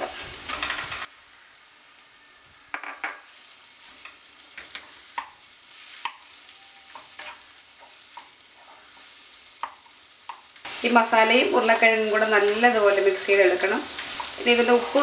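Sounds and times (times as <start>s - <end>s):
faint sizzle: 0.0s - 15.0s
spatula scraping a pan: 3.8s - 9.9s.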